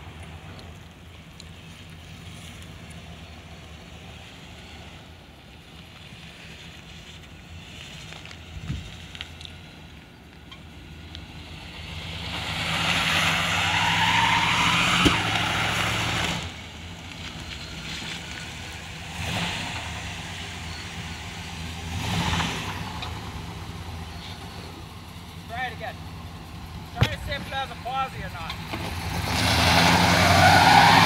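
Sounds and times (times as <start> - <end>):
tyre squealing: 12.8 - 16.5, 29.2 - 31.0
car engine revving hard: 19.1 - 20.0, 21.9 - 22.8, 28.8 - 31.0.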